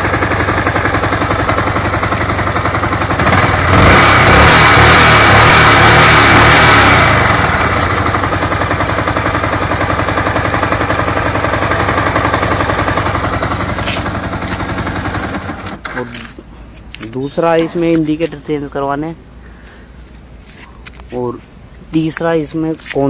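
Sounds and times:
clattering engine tick: 0:00.0 - 0:03.4
motorcycle engine revving and idling: 0:00.0 - 0:16.4.

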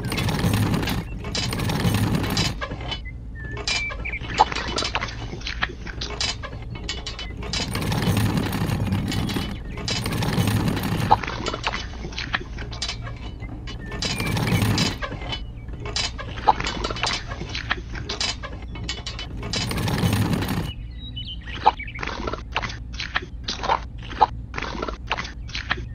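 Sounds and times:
plastic wheel rolling on sand: 0:00.0 - 0:03.0, 0:04.4 - 0:18.1, 0:18.8 - 0:20.8.

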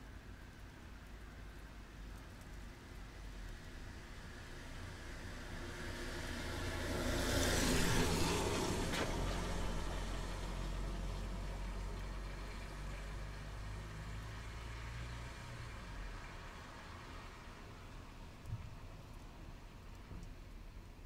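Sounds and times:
low engine hum: 0:00.2 - 0:21.0
tyre hiss on wet road: 0:03.0 - 0:13.4.

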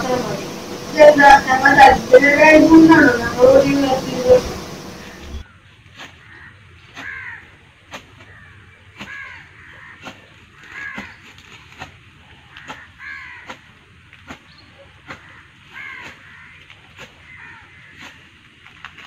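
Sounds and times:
crow cawing: 0:06.3 - 0:07.5, 0:08.3 - 0:11.2, 0:12.6 - 0:13.5, 0:15.2 - 0:16.6, 0:17.3 - 0:18.1.

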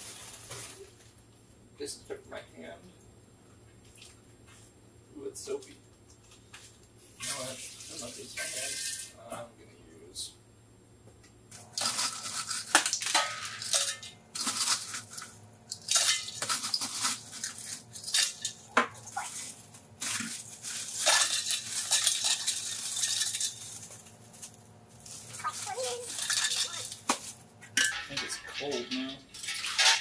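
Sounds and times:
plastic bag crinkling: 0:00.0 - 0:01.0, 0:14.4 - 0:27.5
ice cubes rattling and clinking: 0:11.7 - 0:30.0.

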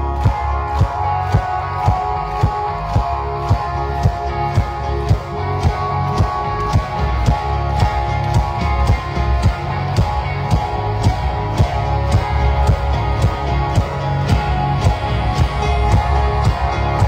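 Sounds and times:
crowd clapping along: 0:00.0 - 0:17.0
live pop-rock band: 0:00.0 - 0:17.0.

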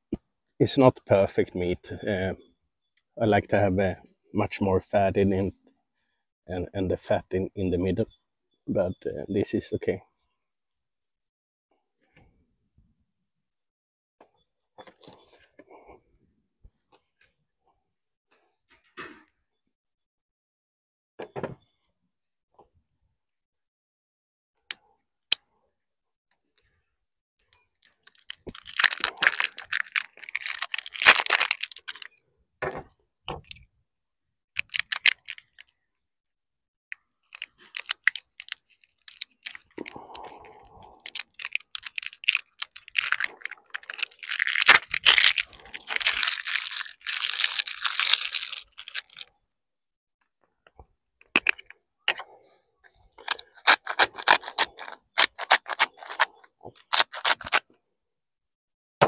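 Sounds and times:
spice grinder crunching clicks: 0:27.8 - 0:32.1, 0:34.6 - 0:35.7, 0:37.3 - 0:40.0, 0:41.0 - 0:49.3, 0:53.2 - 0:57.8.

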